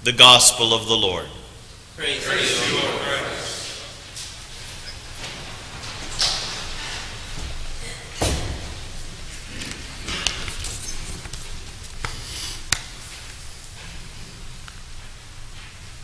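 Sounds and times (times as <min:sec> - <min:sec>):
paper sheets rustling: 0:09.4 - 0:13.4.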